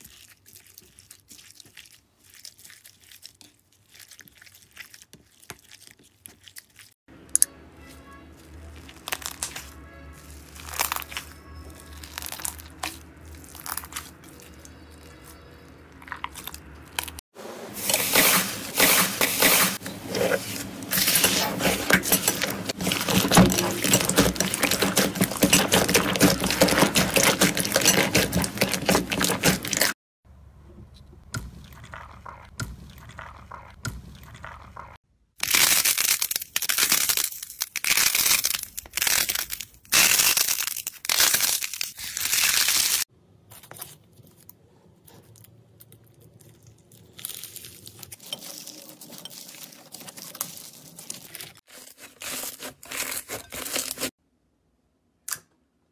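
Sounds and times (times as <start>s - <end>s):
slime crackling and popping: 8.5s - 9.7s.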